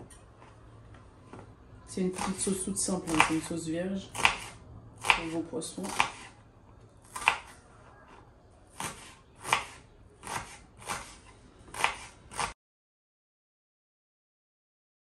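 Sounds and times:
knife dicing on wooden board: 0:04.1 - 0:06.3, 0:07.1 - 0:07.6, 0:08.8 - 0:12.6.

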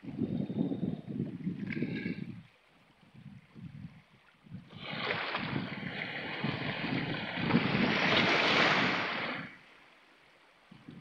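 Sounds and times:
wave washing over rocks: 0:04.7 - 0:09.7.

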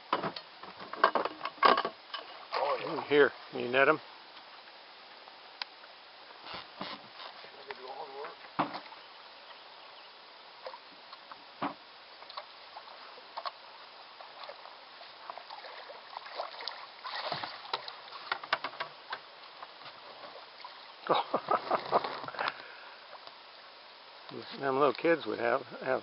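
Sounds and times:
water splashing beside boat: 0:00.0 - 0:09.6, 0:10.5 - 0:25.2.

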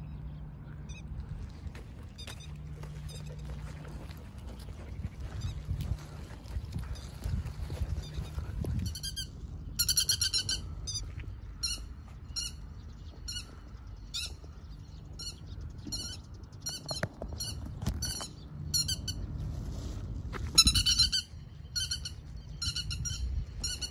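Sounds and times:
lapwing alarm calls: 0:07.0 - 0:12.6.

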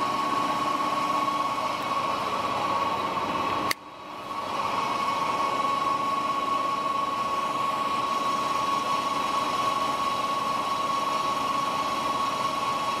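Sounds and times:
lathe running with high whine: 0:00.0 - 0:13.0.

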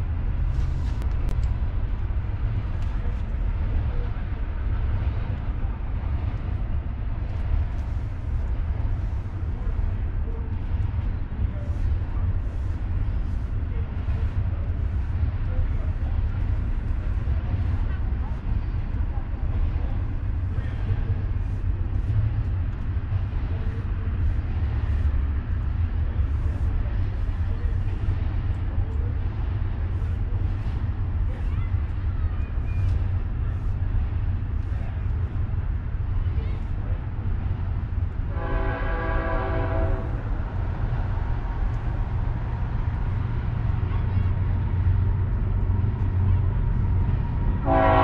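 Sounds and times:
freight train rumbling: 0:00.0 - 0:48.0
locomotive air horn blast: 0:38.3 - 0:40.2, 0:47.6 - 0:48.0.

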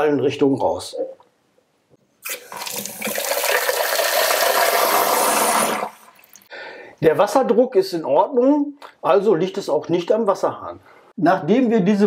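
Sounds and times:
water gushing into plastic jug: 0:02.2 - 0:06.5.

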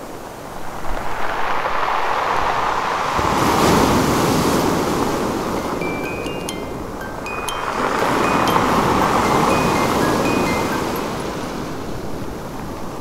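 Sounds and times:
ocean waves washing in: 0:00.1 - 0:13.0.

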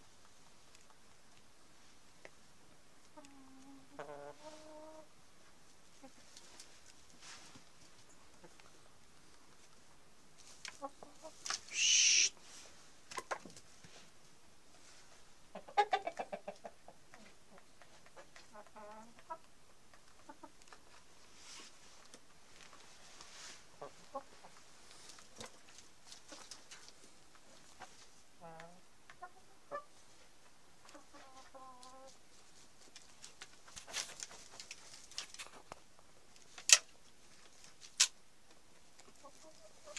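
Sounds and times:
chicken clucking: 0:03.0 - 0:07.0, 0:07.6 - 0:08.9, 0:10.5 - 0:12.3, 0:15.4 - 0:21.2, 0:23.7 - 0:35.8, 0:38.8 - 0:39.9
chicken squawking: 0:11.6 - 0:12.4.

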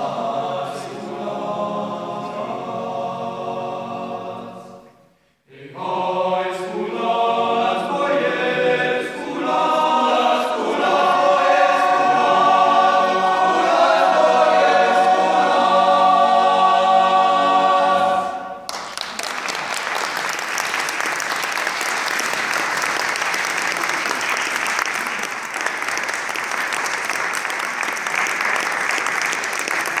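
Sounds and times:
male choir singing a chord: 0:00.0 - 0:04.9, 0:05.5 - 0:18.6
audience applause: 0:18.7 - 0:30.0.

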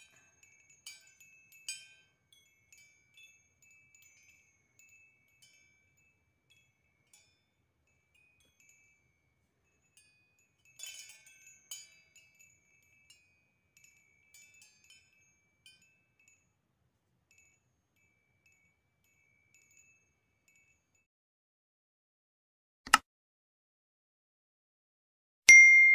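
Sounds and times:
metal wind chime ringing: 0:00.0 - 0:16.6, 0:17.3 - 0:21.0, 0:25.5 - 0:25.9.

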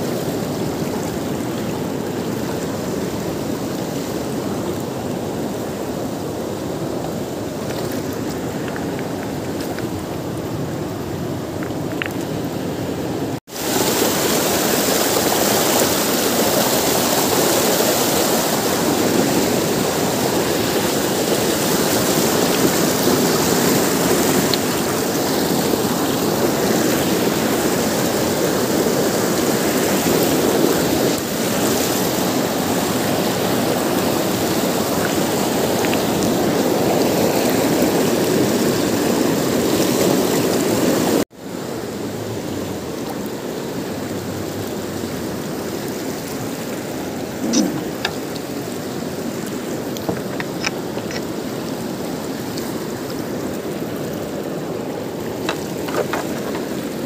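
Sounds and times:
river water rushing over boulders: 0:00.0 - 0:57.0.

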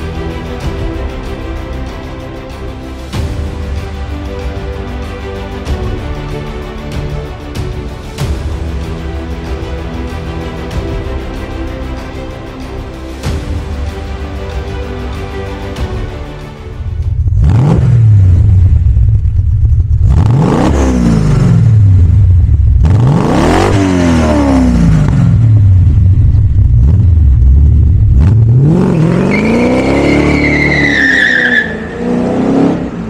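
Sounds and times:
car engine revving: 0:17.2 - 0:33.0.

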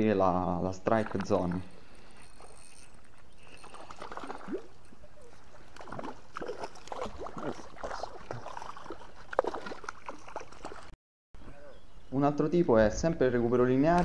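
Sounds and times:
fish splashing in water: 0:03.4 - 0:04.8, 0:05.4 - 0:10.9.

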